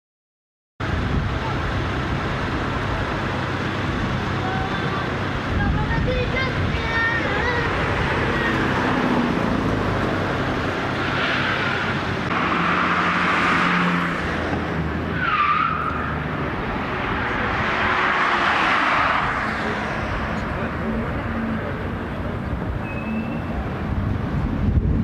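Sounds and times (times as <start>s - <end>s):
cars driving past: 0.8s - 25.0s
brief squeal: 22.8s - 23.6s.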